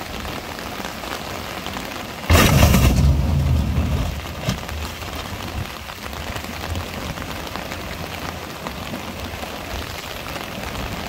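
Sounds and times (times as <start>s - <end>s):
rain falling: 0.0s - 11.0s
raindrops pattering on umbrella: 0.0s - 11.0s
low rumble: 2.3s - 5.7s.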